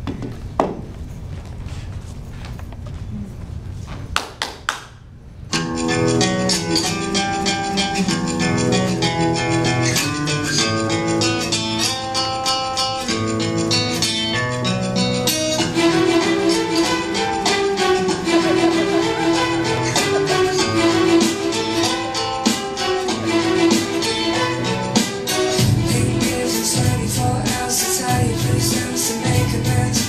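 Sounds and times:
flamenco-style guitar music: 5.5s - 30.0s.

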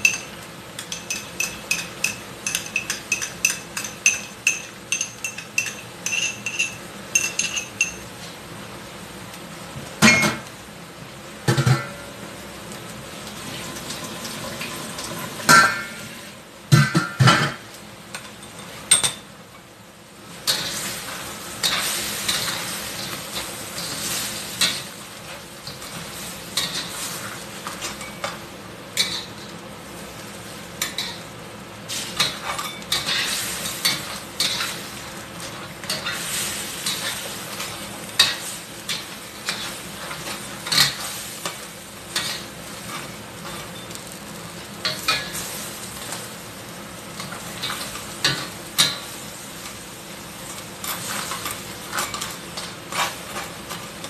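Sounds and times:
spatula scraping and clinking on pan: 0.0s - 8.0s, 32.2s - 44.1s, 50.8s - 53.9s
crab sizzling in a wok: 0.0s - 54.0s.

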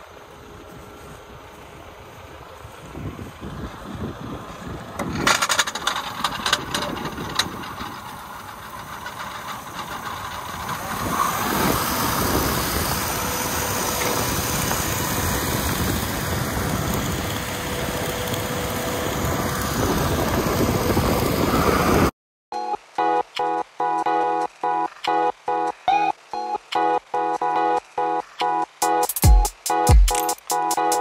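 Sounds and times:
vehicle engine running: 0.0s - 22.1s.

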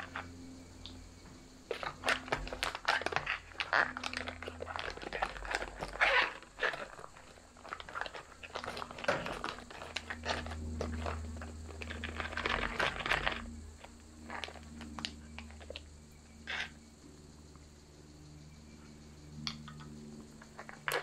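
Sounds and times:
pouch crinkling: 1.7s - 15.8s.

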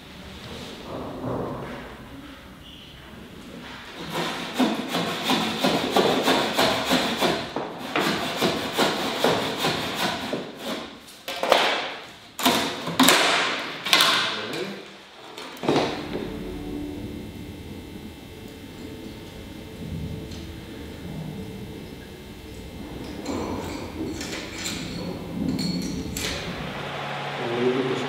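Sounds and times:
heavy ringing hammer strikes: 15.8s - 27.4s.

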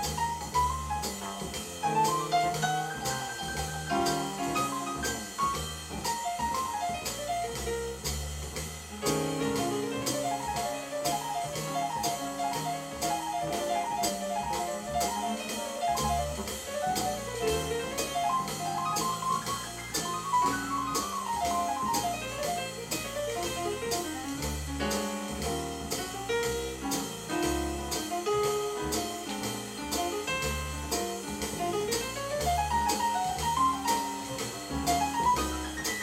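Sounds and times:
jazz record over loudspeakers: 0.0s - 36.0s.

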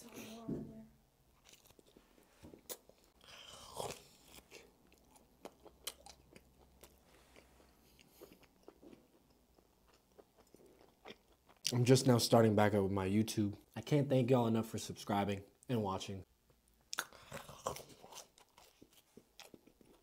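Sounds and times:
person chewing food: 1.3s - 11.8s, 16.8s - 20.0s.

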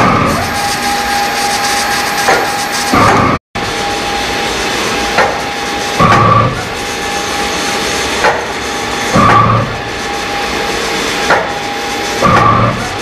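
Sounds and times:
printer whine: 0.0s - 13.0s
carriage clunk with whir: 8.2s - 9.8s, 11.2s - 12.9s.

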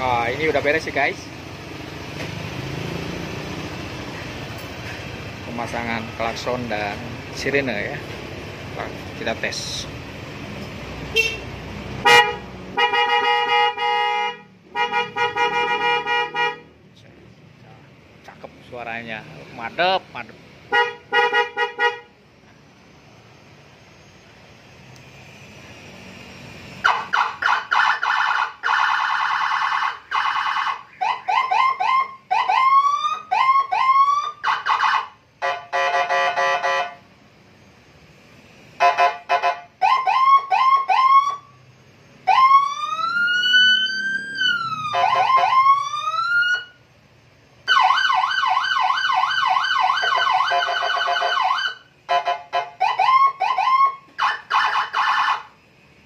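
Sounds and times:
police siren cycling tones: 22.7s - 38.1s, 38.8s - 46.9s, 47.6s - 55.7s.

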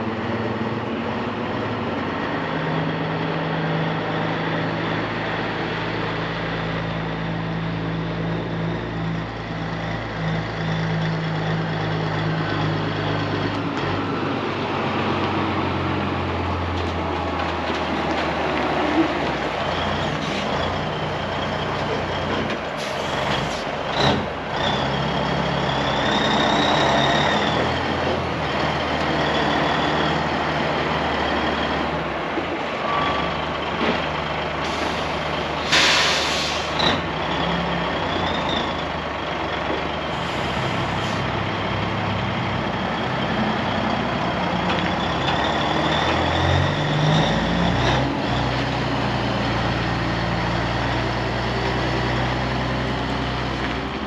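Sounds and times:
diesel truck engine running: 0.0s - 54.0s
short burst of hiss: 34.8s - 36.8s.

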